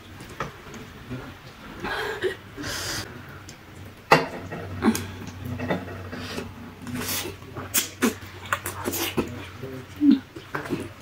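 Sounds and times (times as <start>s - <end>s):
chewing: 4.9s - 11.0s
noodle slurp: 6.2s - 9.5s.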